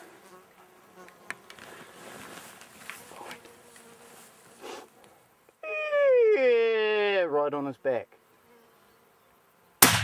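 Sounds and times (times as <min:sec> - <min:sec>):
insects buzzing: 0:00.0 - 0:10.0
loud falling call: 0:05.6 - 0:06.7.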